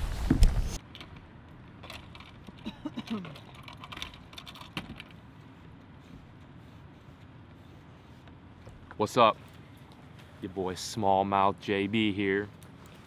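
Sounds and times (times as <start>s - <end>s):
wind and microphone handling noise: 0.0s - 0.8s.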